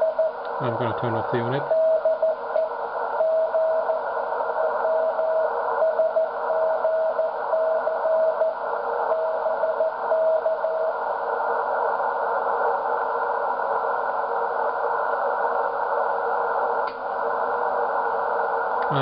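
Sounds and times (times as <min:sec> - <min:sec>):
radio band noise hiss: 0:00.0 - 0:19.0
morse code tone: 0:01.0 - 0:02.4.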